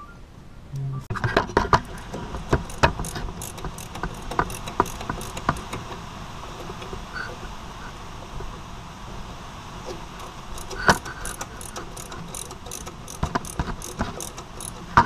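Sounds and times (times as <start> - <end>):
metallic clicks of brake parts: 1.4 - 7.0, 10.2 - 15.0.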